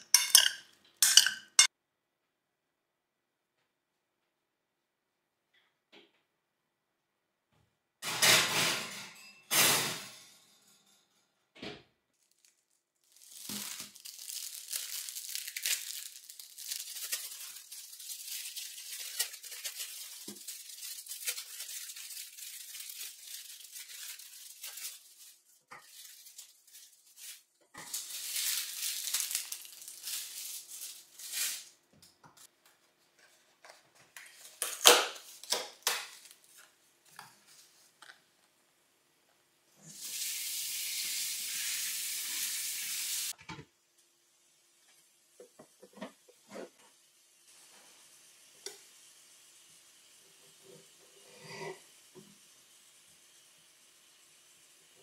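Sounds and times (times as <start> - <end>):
plastic film crinkling: 12.1 - 31.8, 34.1 - 36.8.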